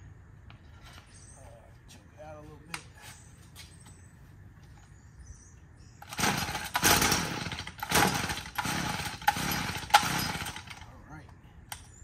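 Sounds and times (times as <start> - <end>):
engine turning over: 6.0 - 10.9.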